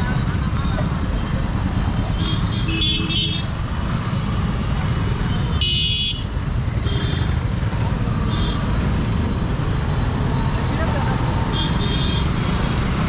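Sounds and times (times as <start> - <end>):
road traffic rumble: 0.0 - 13.0
vehicle horn toots: 5.6 - 7.4.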